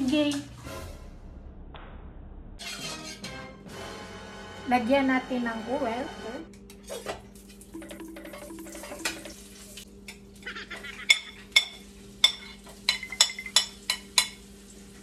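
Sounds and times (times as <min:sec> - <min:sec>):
butter sizzling in a wok: 0:08.4 - 0:09.9, 0:11.5 - 0:15.0.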